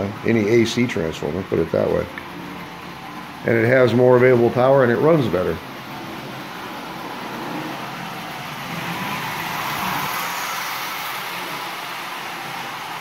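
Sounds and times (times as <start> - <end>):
toy train rattling on track: 1.7 - 13.0.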